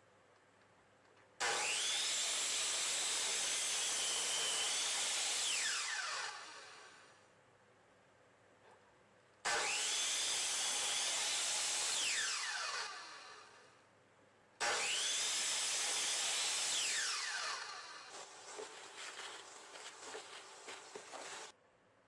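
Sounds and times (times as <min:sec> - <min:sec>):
saw blade cutting wood: 0:01.4 - 0:07.0, 0:09.5 - 0:13.5, 0:14.6 - 0:21.5
circular saw motor whining: 0:01.5 - 0:06.8, 0:14.6 - 0:21.5.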